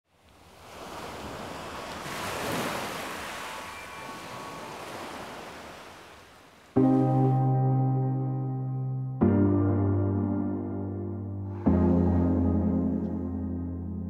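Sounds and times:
waves washing in: 0.1s - 7.4s.

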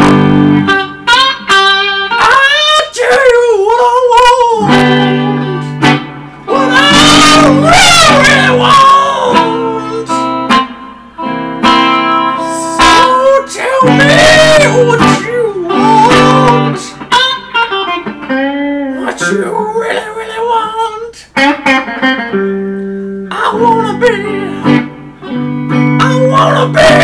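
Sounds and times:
electric guitar playing blues: 0.0s - 27.0s
person singing: 2.1s - 10.4s, 12.2s - 17.6s, 18.7s - 21.4s, 23.2s - 25.0s, 25.9s - 27.0s.

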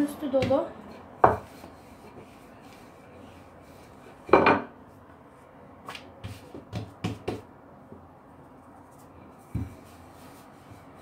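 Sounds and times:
rolling pin knocking on countertop: 1.2s - 1.7s, 6.2s - 7.5s.

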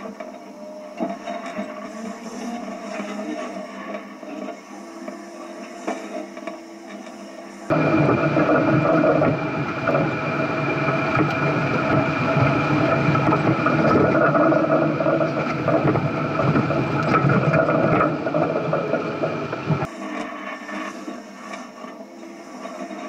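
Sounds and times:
high whine: 5.4s - 22.2s
off-road vehicle engine running: 7.7s - 19.9s.

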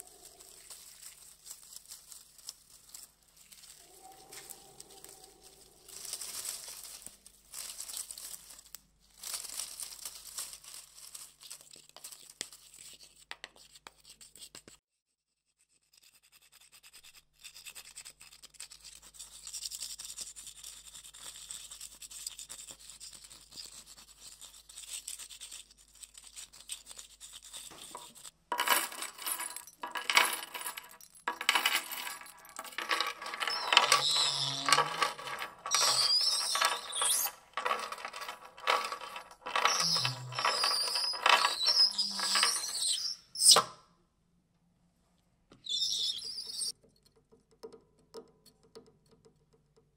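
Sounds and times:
faint crackling and rustling: 0.0s - 13.6s, 24.2s - 42.7s
chirp-like whistles: 45.6s - 46.7s.

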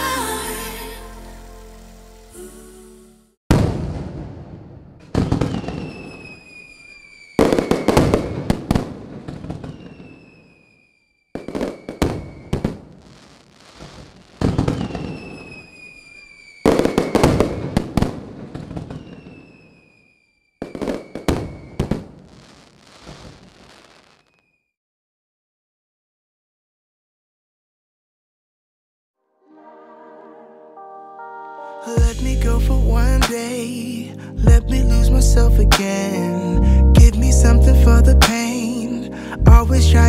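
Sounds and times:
fireworks bangs and crackles: 3.5s - 24.6s
high whistle sliding down: 5.6s - 8.0s, 14.8s - 17.2s.

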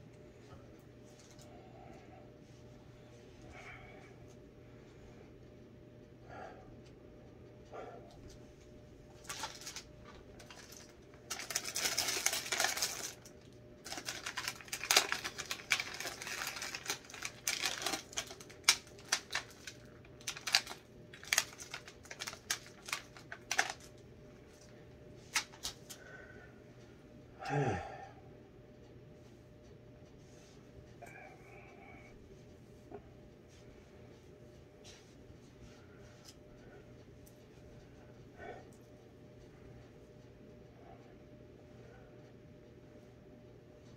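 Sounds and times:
crinkly plastic packaging rustling: 9.1s - 26.0s.

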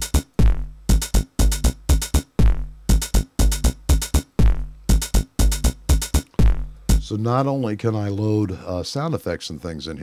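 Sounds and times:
synth bass line: 0.0s - 7.1s
electronic drum loop: 0.0s - 7.3s.

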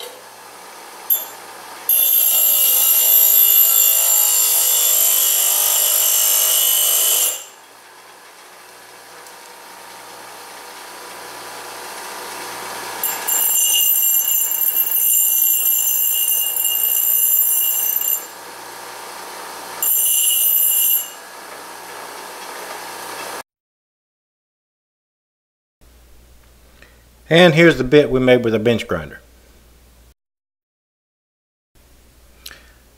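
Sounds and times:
grinder wheel grinding steel pipe: 1.1s - 7.8s, 11.2s - 21.7s
grinder wheel running: 1.1s - 23.2s.

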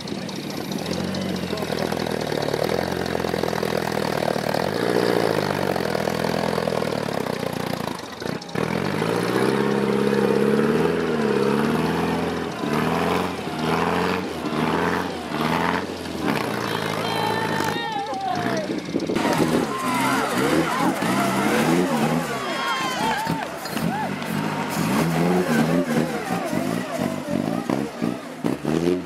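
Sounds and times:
car engine labouring and revving: 0.0s - 29.0s.

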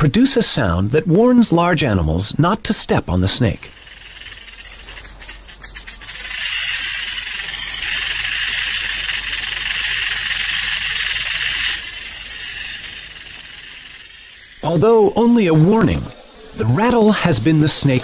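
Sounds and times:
rattlesnake rattle buzzing: 3.5s - 15.2s
dry rattle clicks: 3.6s - 14.6s.

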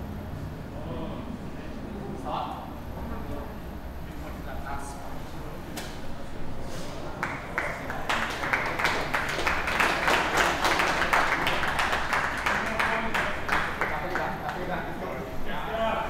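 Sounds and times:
audience clapping: 7.1s - 14.9s.

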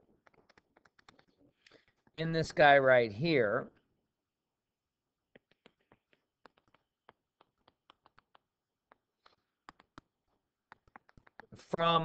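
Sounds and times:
stylus tapping on touchscreen: 5.3s - 11.6s.

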